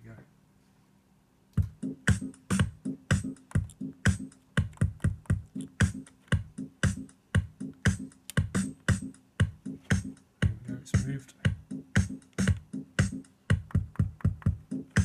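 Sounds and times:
electronic drum machine beat: 1.6s - 15.0s.

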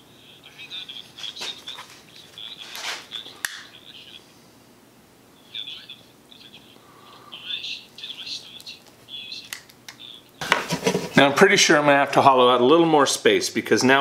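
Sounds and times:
small birds chirping: 5.4s - 10.4s.

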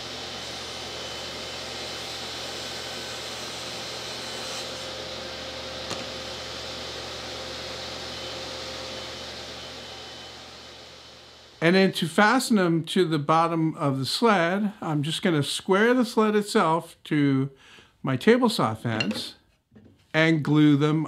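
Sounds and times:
table saw whirring: 0.0s - 11.3s.

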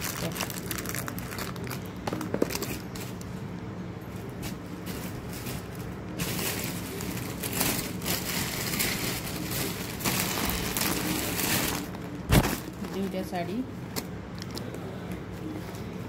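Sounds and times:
plastic packaging crinkling: 0.0s - 3.4s, 4.2s - 13.3s
steady low hum: 0.0s - 16.0s.

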